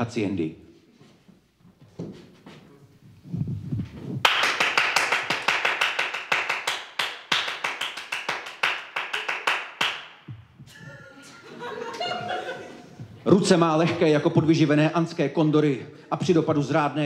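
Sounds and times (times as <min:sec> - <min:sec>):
hand claps: 0:04.2 - 0:10.3.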